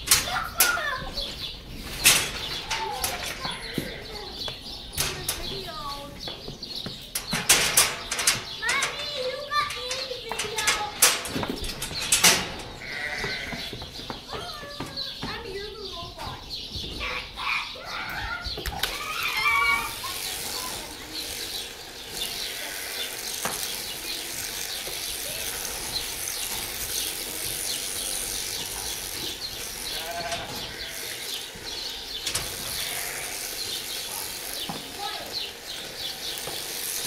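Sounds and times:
sheep bleating: 3.4s - 4.3s, 12.8s - 13.8s, 29.8s - 31.4s, 32.6s - 34.3s.

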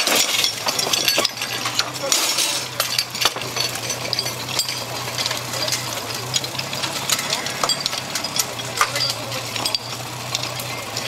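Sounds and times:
metal hose couplings clinking: 0.0s - 11.0s
pump engine running: 0.0s - 11.0s.

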